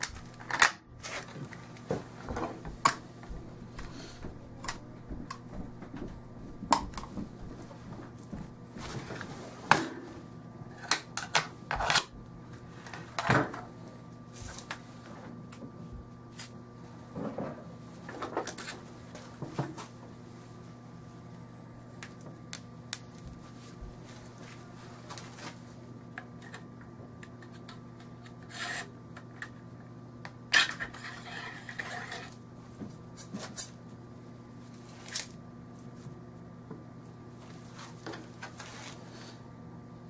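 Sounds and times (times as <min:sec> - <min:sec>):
metal parts clicking and clinking: 0:22.5 - 0:23.4
rubbing and scraping: 0:30.8 - 0:32.4.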